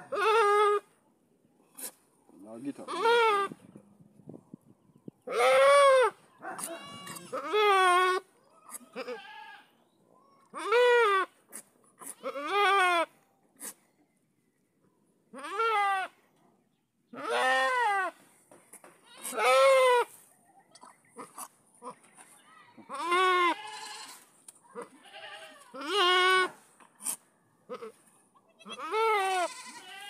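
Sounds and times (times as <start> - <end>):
goat bleating: 0.0 - 0.8, 2.8 - 3.6, 5.3 - 9.7, 10.5 - 11.3, 12.0 - 13.1, 15.3 - 16.2, 17.2 - 18.2, 19.0 - 20.1, 22.8 - 30.0.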